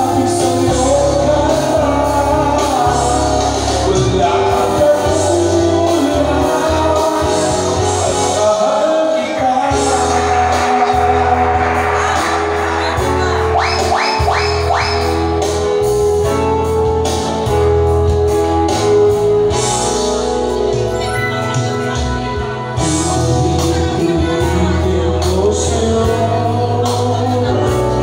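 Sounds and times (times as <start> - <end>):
steady bass line: 0.0 - 8.8, 9.4 - 28.0
person singing into a microphone: 0.0 - 15.5, 19.8 - 28.0
amplified backing music with guitar: 0.0 - 28.0
quick rising sweeps: 10.0 - 15.6.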